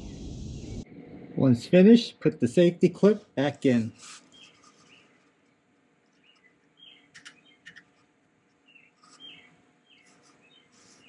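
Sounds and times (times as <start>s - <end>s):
faint bird chirps: 6.2s - 8.0s, 8.6s - 11.0s.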